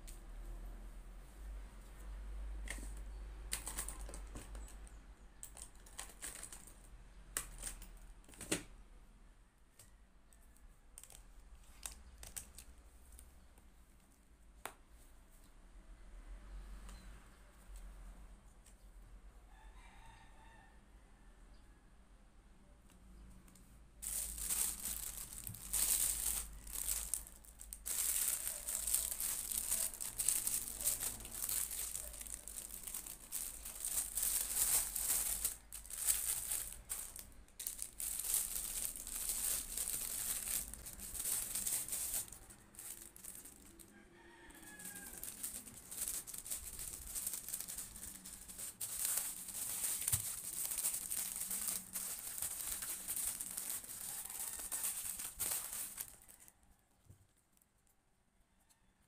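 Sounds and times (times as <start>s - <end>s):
plastic packaging crinkling: 2.7s - 4.8s, 5.4s - 8.6s, 11.0s - 12.7s, 24.0s - 56.5s.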